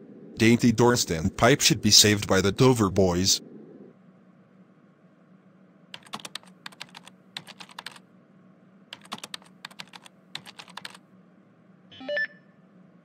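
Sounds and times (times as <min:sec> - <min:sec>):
keyboard key clicks: 0:06.0 - 0:08.0, 0:08.9 - 0:11.0.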